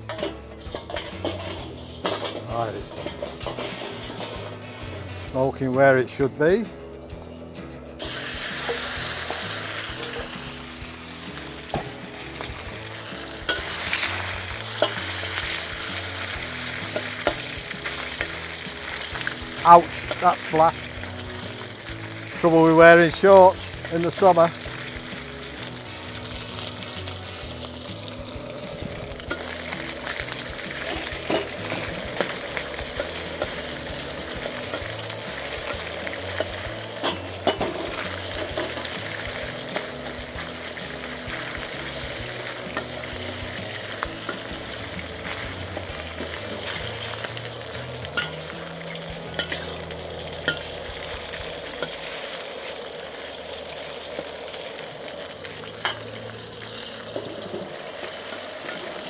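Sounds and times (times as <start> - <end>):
meat sizzling in a wok: 7.9 - 59.0
metal spatula clinking on wok: 13.5 - 13.8, 48.2 - 48.4.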